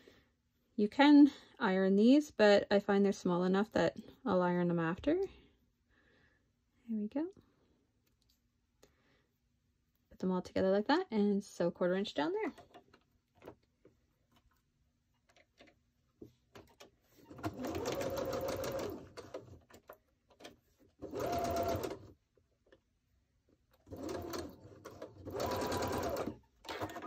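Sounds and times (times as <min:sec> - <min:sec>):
sewing machine stitching: 0:16.6 - 0:22.2, 0:23.8 - 0:27.0.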